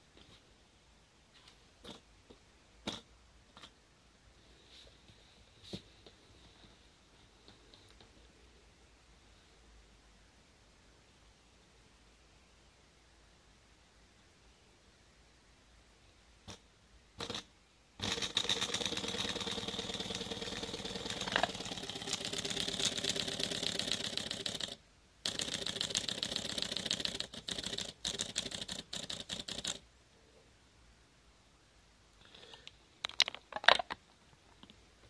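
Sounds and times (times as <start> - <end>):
model steam engine clicking: 18.0 - 29.8.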